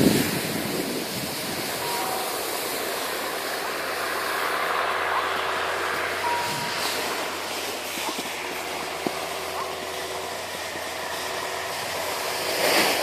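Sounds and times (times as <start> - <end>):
wind on microphone: 0.0 - 4.3, 6.0 - 8.4
skis sliding over snow: 0.0 - 13.0.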